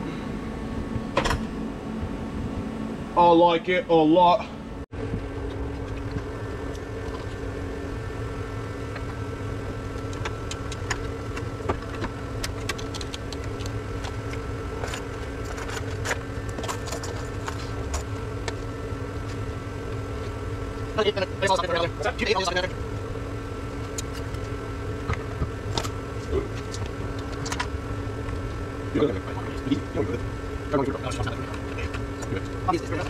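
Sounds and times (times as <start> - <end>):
steady mechanical hum: 0.0 - 33.0
wiring connectors clicking: 10.0 - 18.6.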